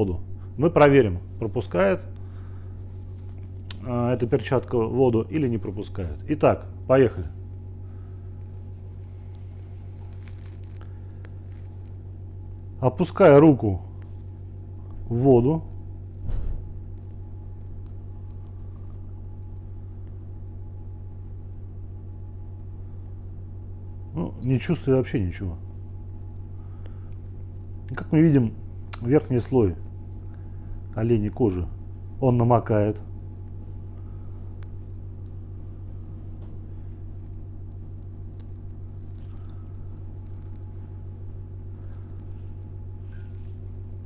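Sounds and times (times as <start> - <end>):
low buzzy hum: 0.0 - 44.0
water ticks in a bowl: 38.4 - 40.7.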